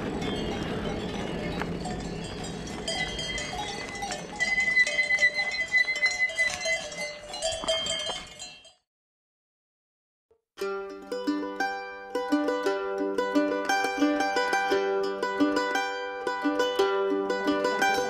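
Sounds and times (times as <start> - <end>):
bicycle tyres rolling on gravel: 0.0 - 8.3
cowbells clanking: 0.0 - 8.8.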